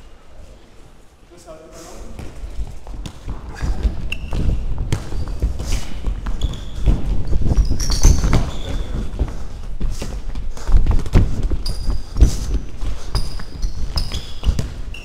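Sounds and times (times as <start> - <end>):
running footsteps thudding: 2.2 - 14.9
high shoe squeaks: 3.6 - 9.1, 11.6 - 15.0.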